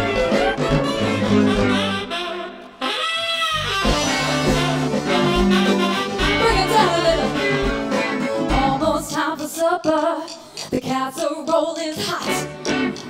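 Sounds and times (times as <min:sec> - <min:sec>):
live band playing blues: 0:00.0 - 0:09.1, 0:12.2 - 0:13.0
saxophone: 0:00.0 - 0:09.1
woman singing: 0:06.4 - 0:07.5, 0:08.4 - 0:13.0.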